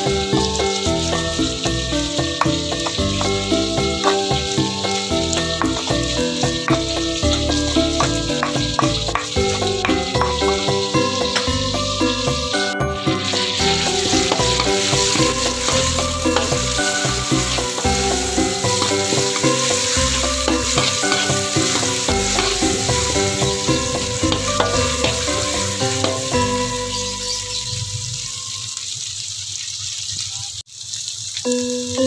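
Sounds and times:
food sizzling in hot oil: 0:00.0 - 0:32.0
metal spatula scraping pan: 0:13.0 - 0:27.0.

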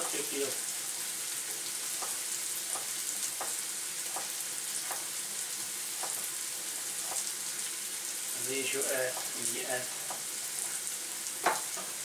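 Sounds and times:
onions sizzling in oil: 0:00.0 - 0:12.0
knife knocking on cutting board: 0:11.4 - 0:11.7.

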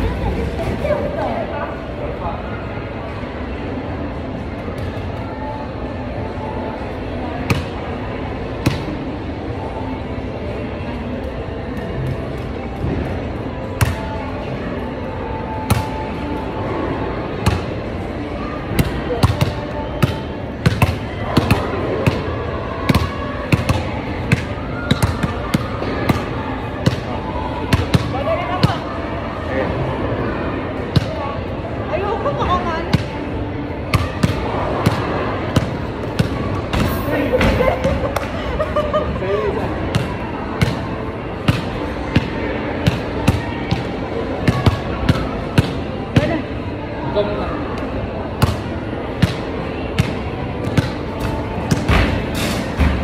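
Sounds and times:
steady background din: 0:00.0 - 0:53.0
basketballs hitting backboards and rims: 0:39.9 - 0:46.3, 0:48.4 - 0:53.0
basketballs thudding: 0:48.4 - 0:53.0.

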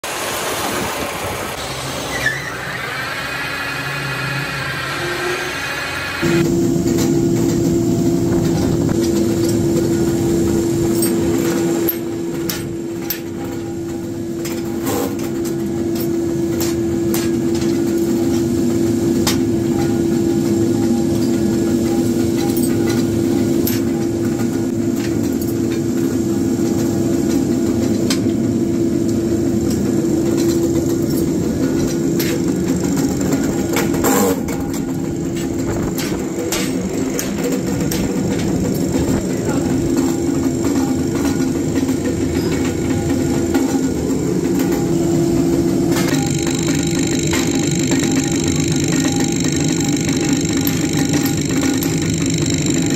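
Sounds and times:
machine hum with high whine: 0:00.0 - 0:52.9
metal lathe cutting steel: 0:01.5 - 0:06.4, 0:46.1 - 0:52.9
electric motor hum: 0:46.1 - 0:52.9.

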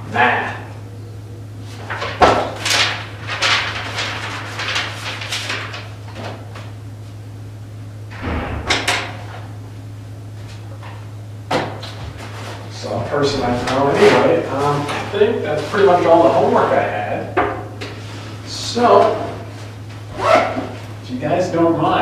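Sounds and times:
paper handling: 0:01.6 - 0:06.8, 0:10.4 - 0:16.9.

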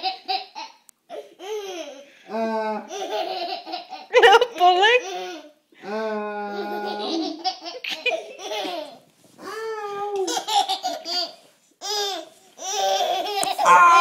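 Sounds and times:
baby giggling: 0:06.5 - 0:09.0, 0:10.2 - 0:14.0.

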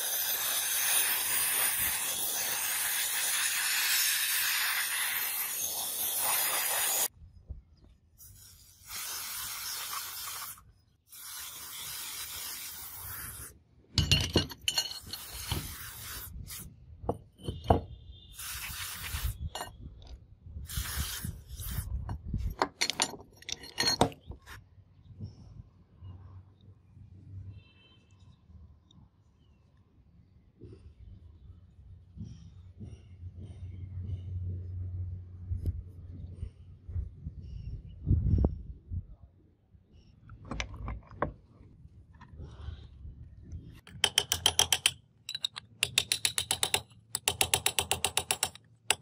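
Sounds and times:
aerosol spray hissing: 0:00.0 - 0:07.1, 0:08.2 - 0:13.5, 0:15.2 - 0:16.6, 0:18.4 - 0:19.4, 0:20.7 - 0:21.9
steel parts clinking on concrete: 0:13.4 - 0:15.9, 0:18.4 - 0:20.2, 0:20.8 - 0:24.4, 0:43.9 - 0:49.0.

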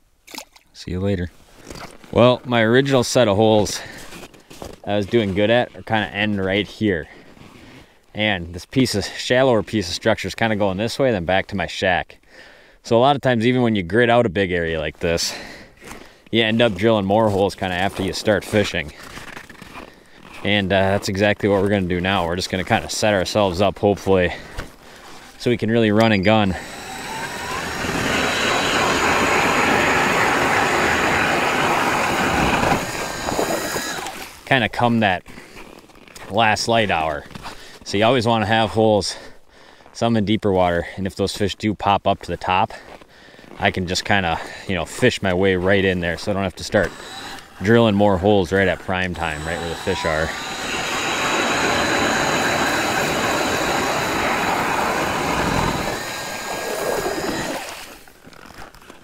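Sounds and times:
blades grinding ice: 0:16.6 - 0:23.5, 0:25.0 - 0:34.5, 0:45.7 - 0:59.0
ice auger motor whine: 0:26.0 - 0:34.4, 0:46.6 - 0:58.7.

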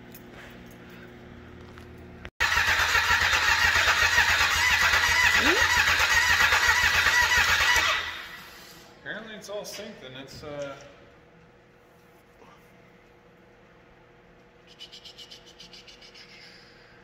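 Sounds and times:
snowmobile engine cranking: 0:02.4 - 0:08.2
faint hum: 0:08.1 - 0:17.0.

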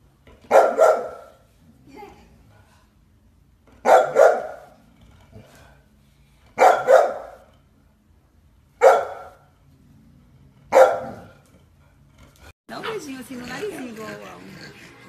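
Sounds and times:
dog barking loudly: 0:00.5 - 0:01.4, 0:03.8 - 0:04.8, 0:06.6 - 0:07.4, 0:08.8 - 0:09.4, 0:10.7 - 0:11.3.

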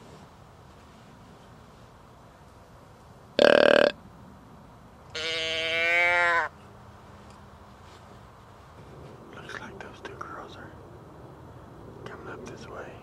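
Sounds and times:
deer bleat: 0:03.4 - 0:04.0, 0:05.1 - 0:06.5.

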